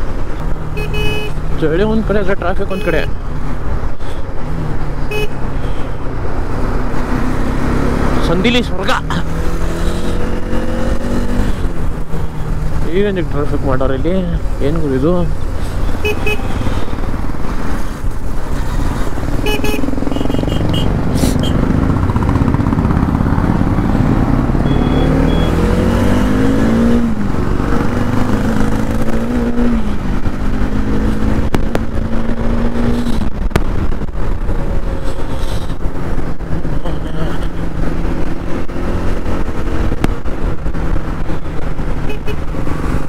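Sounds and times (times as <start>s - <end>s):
motorcycle engine revving through gears: 6.0s - 43.0s
wind rush on microphone: 27.0s - 37.0s.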